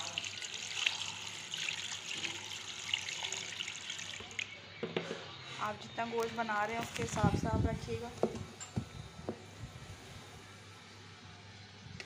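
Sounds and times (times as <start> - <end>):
water pouring into a pot: 0.0 - 4.5.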